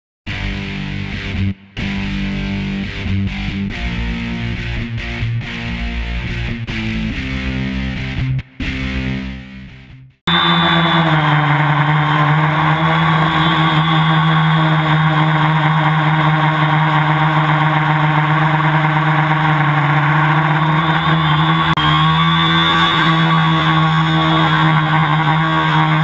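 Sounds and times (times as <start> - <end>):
drone propellers droning: 10.3 - 26.0.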